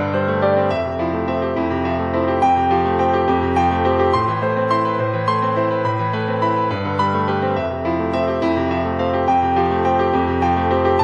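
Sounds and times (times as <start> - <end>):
soft instrumental music: 0.0 - 11.0.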